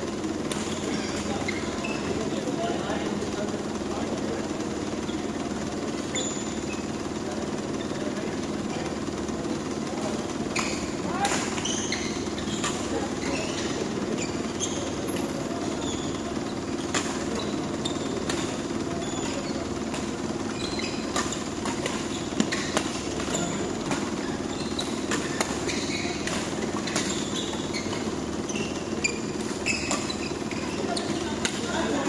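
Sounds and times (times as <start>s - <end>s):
steady hum: 0.0s - 32.0s
rackets striking shuttlecock: 0.2s - 1.4s, 10.5s - 15.4s, 16.1s - 32.0s
shoe squeaks on court floor: 0.6s - 2.6s, 5.0s - 8.2s, 10.4s - 32.0s.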